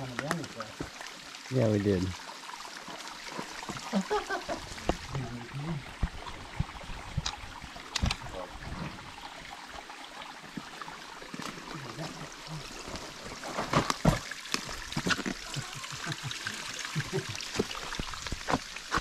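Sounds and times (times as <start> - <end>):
water trickling over rocks: 0.0 - 19.0
scrapes and knocks on rock: 12.9 - 15.4, 17.5 - 19.0.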